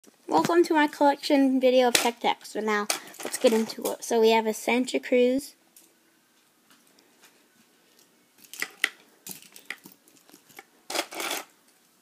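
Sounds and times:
plastic pieces clicking in wooden box: 8.4 - 11.5.

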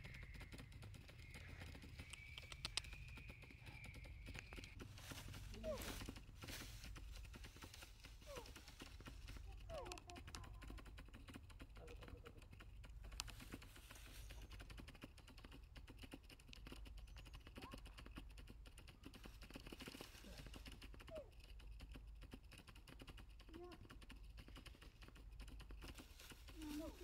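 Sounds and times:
fast crackle of tiny clicks: 0.0 - 5.2, 5.9 - 27.0
faint squeaks or distant voices: 0.0 - 6.1.

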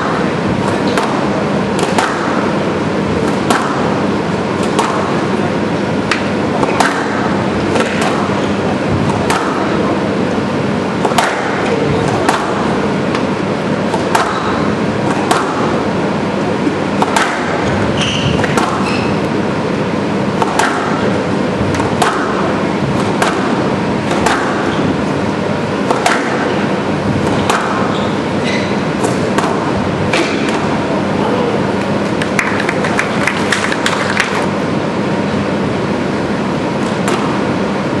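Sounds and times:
squash ball struck by rackets: 0.0 - 30.9, 36.8 - 37.6
shoes squeaking on wooden floor: 17.9 - 19.2, 27.9 - 28.8.

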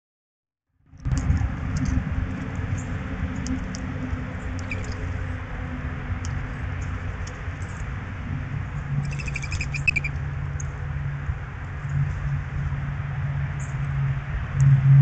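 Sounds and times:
high chirps: 4.6 - 5.0, 9.0 - 10.2.

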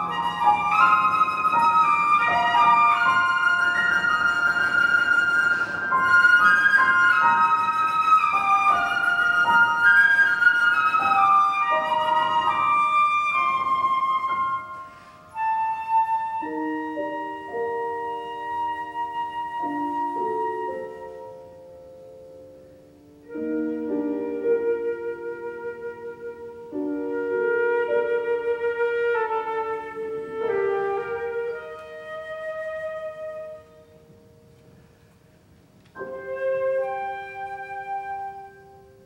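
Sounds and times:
flute playing: 0.0 - 35.1, 35.9 - 39.0
piano playing: 0.0 - 39.0.

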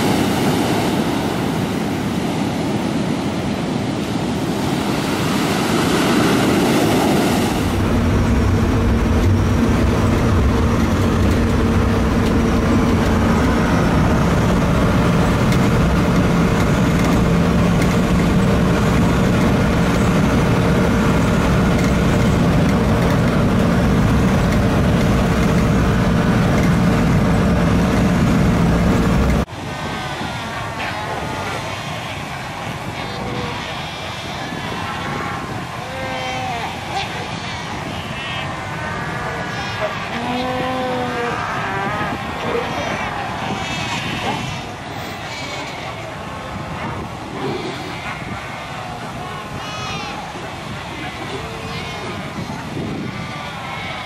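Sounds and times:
ocean surf breaking: 0.0 - 54.0
wind: 0.0 - 54.0
vehicle rumble from inside cabin: 7.6 - 29.5.

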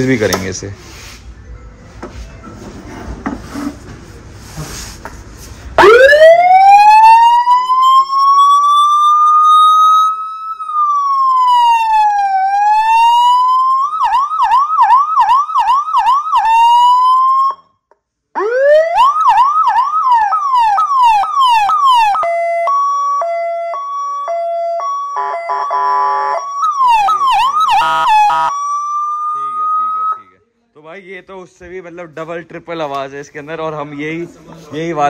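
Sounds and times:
electronic siren wailing and yelping: 5.8 - 17.6, 18.4 - 30.2
buzzing horn tone: 25.2 - 26.4, 27.7 - 28.5.

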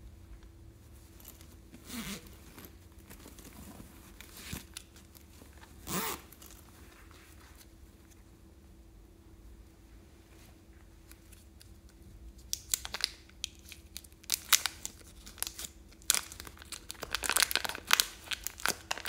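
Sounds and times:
zipper rasping: 1.8 - 2.7, 5.8 - 6.6.

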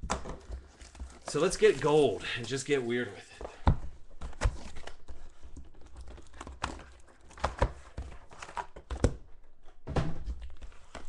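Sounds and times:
cardboard clicks and knocks: 0.0 - 1.7, 3.5 - 11.0
wrappers crinkling: 0.5 - 3.0.

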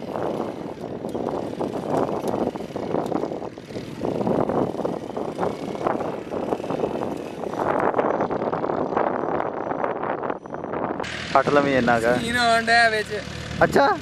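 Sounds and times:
small motorcycle engine running: 0.0 - 14.0.

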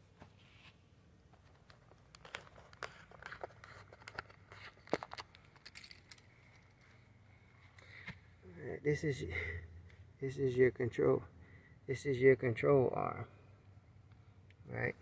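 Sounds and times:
rustles and clicks of handling: 0.0 - 8.4.

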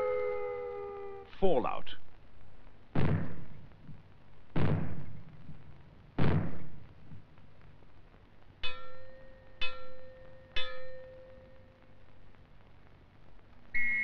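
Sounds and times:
gong ringing: 0.0 - 1.2
maroon bangs with rumbling tail: 2.9 - 7.3.

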